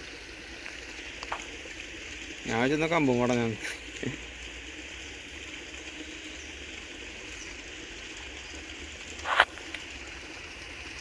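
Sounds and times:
steady outdoor hiss: 0.0s - 11.0s.

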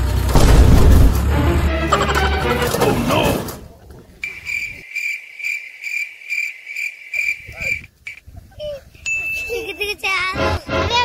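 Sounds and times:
cricket chirping: 4.2s - 8.3s.

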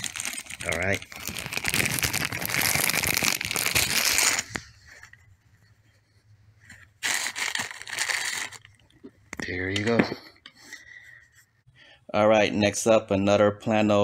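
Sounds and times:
plastic bag crinkling: 0.0s - 5.1s, 7.0s - 8.8s.

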